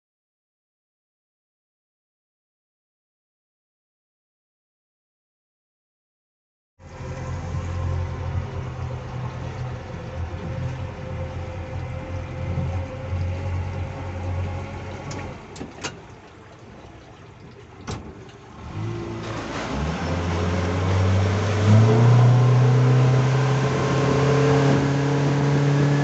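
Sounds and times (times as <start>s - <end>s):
outboard motor drone: 6.8s - 26.0s
rushing water: 6.8s - 26.0s.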